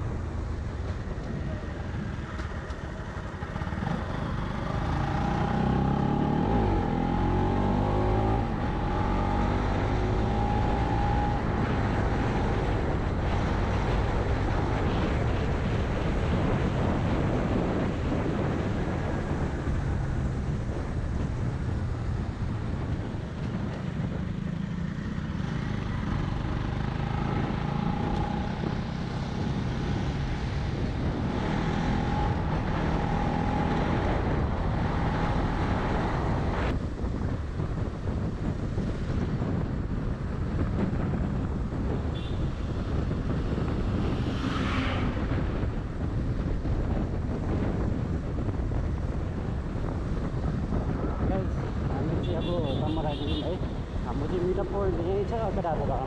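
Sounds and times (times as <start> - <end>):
motorcycle running: 0.0 - 56.0
wind buffeting microphone: 0.0 - 56.0.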